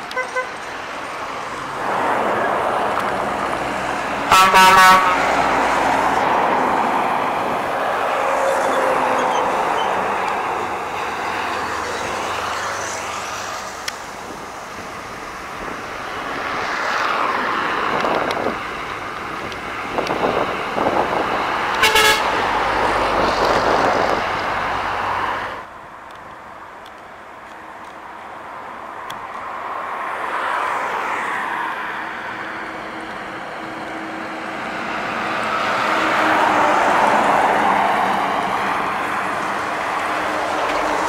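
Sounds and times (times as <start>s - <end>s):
trucks passing on highway: 0.0s - 41.0s
short horn toot: 21.8s - 22.4s.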